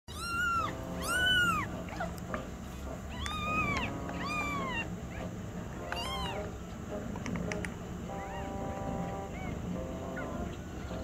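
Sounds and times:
kitten meowing: 0:00.1 - 0:02.2, 0:03.1 - 0:05.2, 0:05.9 - 0:06.5, 0:09.3 - 0:09.6.

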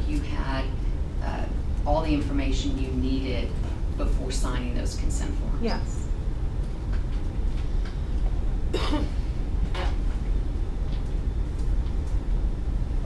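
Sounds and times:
low rumble of room noise: 0:00.0 - 0:13.0
person coughing: 0:08.7 - 0:09.2.

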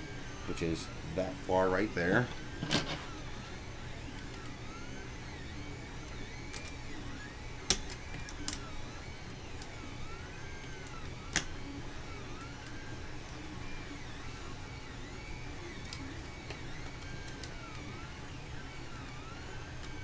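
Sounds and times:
stepper motors whining: 0:00.0 - 0:20.0
sharp clicks on printer frame: 0:07.6 - 0:08.6.

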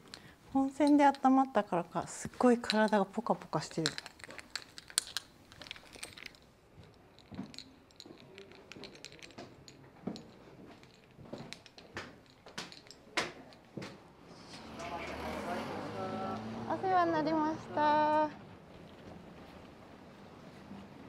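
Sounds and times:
small clicks and clinks: 0:00.0 - 0:14.0.

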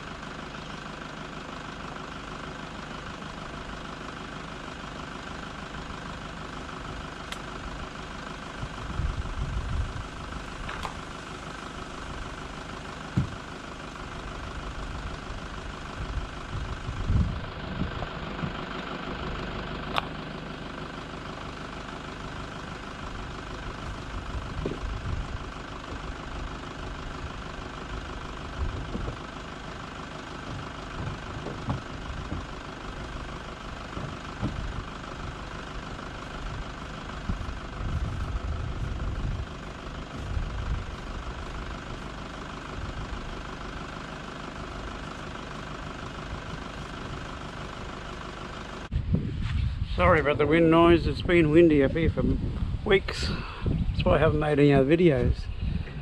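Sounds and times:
wind buffeting microphone: 0:08.7 - 0:10.2, 0:16.0 - 0:18.5, 0:28.6 - 0:29.2, 0:37.3 - 0:39.6, 0:48.9 - 0:54.4, 0:55.2 - 0:56.0
kayak hull knocks: 0:30.5 - 0:32.5, 0:33.9 - 0:34.7.

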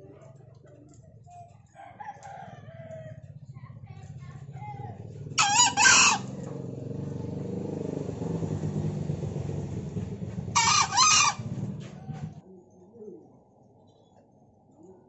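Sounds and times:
rooster crowing: 0:01.8 - 0:03.3, 0:05.4 - 0:06.4, 0:10.5 - 0:12.3
low engine hum: 0:02.7 - 0:12.5.

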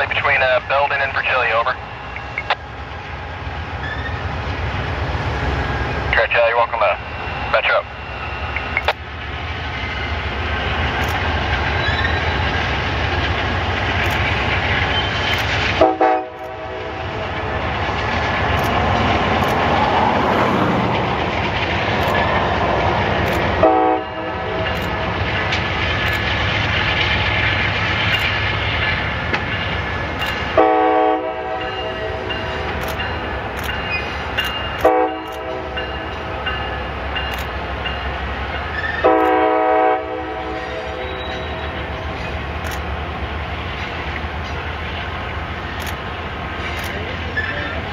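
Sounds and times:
diesel train running on trestle: 0:00.0 - 0:47.9
train horn blasts: 0:15.8 - 0:17.1, 0:23.6 - 0:24.7, 0:30.6 - 0:32.3, 0:34.8 - 0:35.8, 0:39.0 - 0:41.7.

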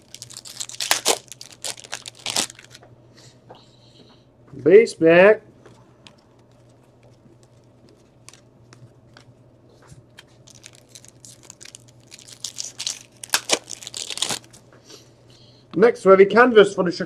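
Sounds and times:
foil wrapper crinkling and tearing: 0:00.0 - 0:02.8, 0:06.5 - 0:08.5, 0:10.1 - 0:14.6.

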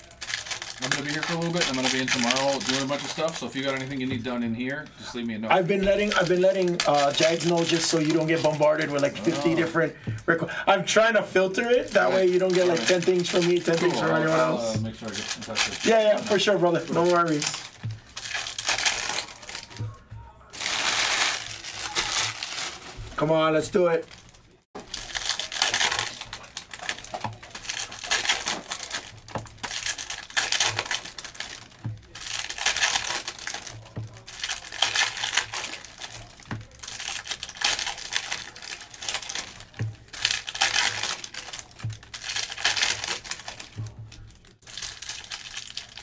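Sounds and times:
plastic wrappers crinkling: 0:00.0 - 0:46.0.

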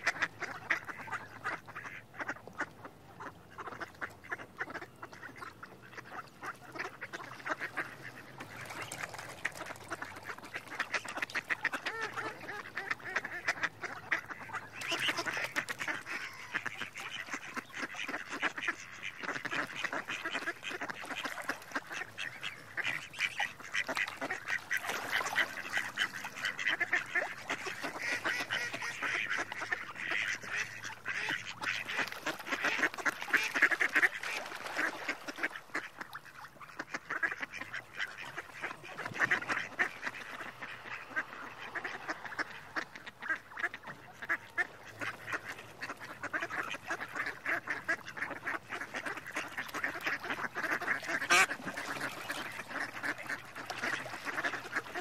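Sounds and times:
ducks quacking: 0:00.0 - 0:55.0.

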